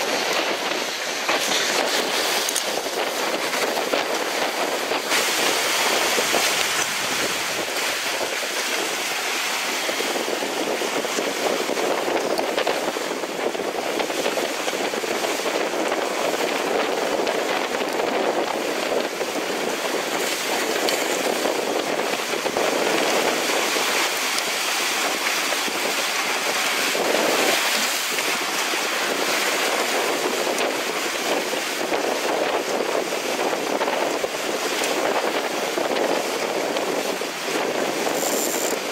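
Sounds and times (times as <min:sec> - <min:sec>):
water rushing along hulls: 0:00.0 - 0:38.9
wind buffeting microphone: 0:00.0 - 0:38.9.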